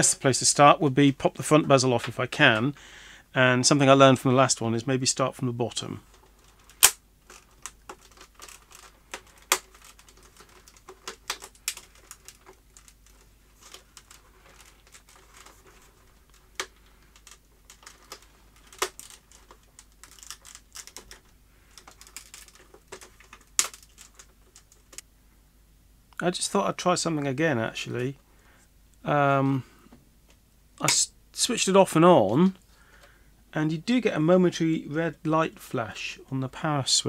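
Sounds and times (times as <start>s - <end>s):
plastic clicks and snaps: 6.1s - 25.1s.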